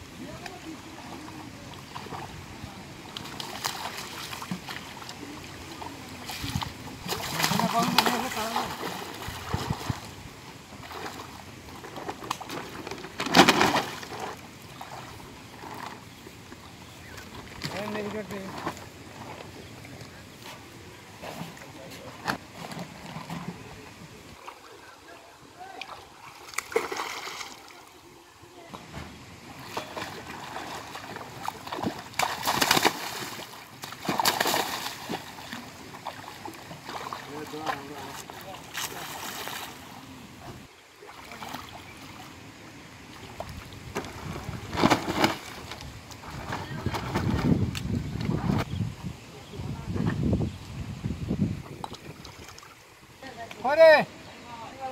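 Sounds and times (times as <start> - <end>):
water sloshing and splashing: 0.1 - 48.7, 51.5 - 53.6
fish thrashing in water: 3.2 - 10.1, 25.8 - 27.8, 29.5 - 39.9.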